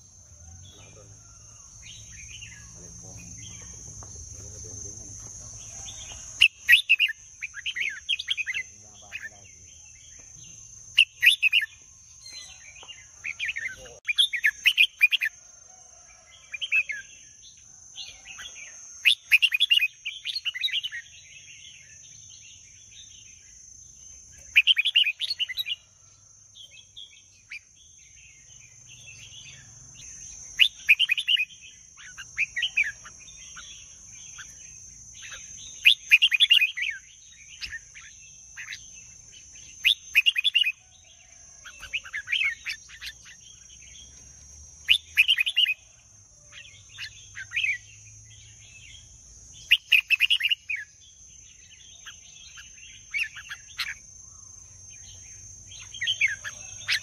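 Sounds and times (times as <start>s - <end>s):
bird singing short phrases: 0.0s - 12.6s, 13.2s - 15.2s.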